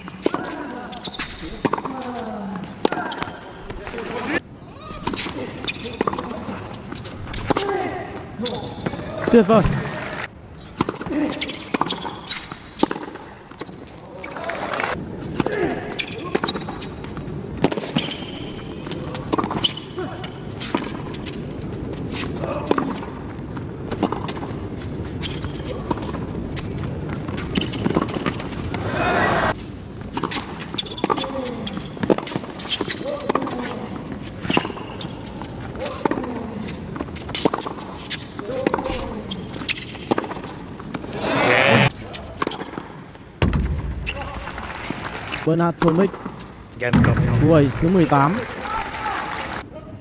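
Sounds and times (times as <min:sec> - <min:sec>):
shoe squeaks on hard court: 0:00.0 - 0:03.6, 0:08.4 - 0:09.0, 0:10.6 - 0:12.8, 0:16.0 - 0:22.4, 0:25.0 - 0:25.9, 0:30.2 - 0:36.2, 0:37.2 - 0:42.7
crowd cheering: 0:09.2 - 0:10.3, 0:14.1 - 0:15.0, 0:28.8 - 0:29.5, 0:41.1 - 0:41.9, 0:44.1 - 0:45.5, 0:47.8 - 0:49.6
racket hitting tennis ball: 0:18.8 - 0:19.9, 0:32.0 - 0:36.3
crowd hum: 0:41.0 - 0:42.2
ball bouncing on hard court: 0:41.8 - 0:44.3.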